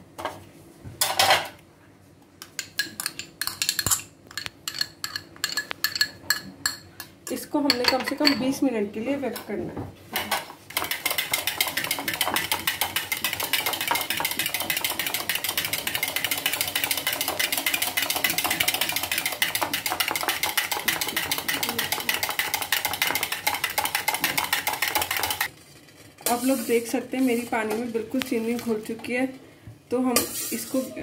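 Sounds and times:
whisk clicking against bowl: 10.7 - 25.5.

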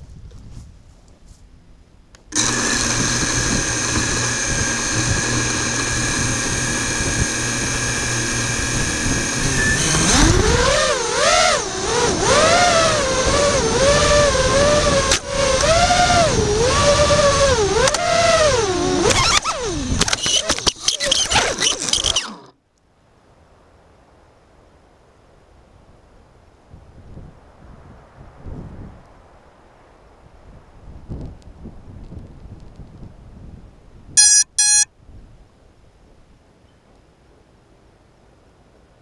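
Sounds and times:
drone motors whining: 2.3 - 22.6.

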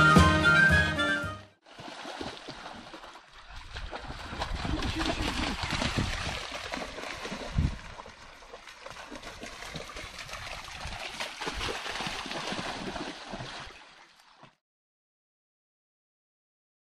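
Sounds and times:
water splashing and trickling: 1.6 - 14.6.

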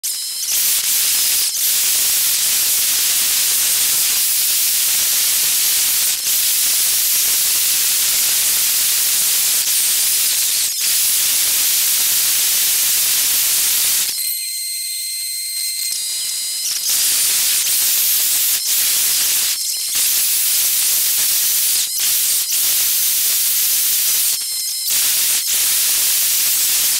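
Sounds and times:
faint steady high tones: 13.4 - 18.6.

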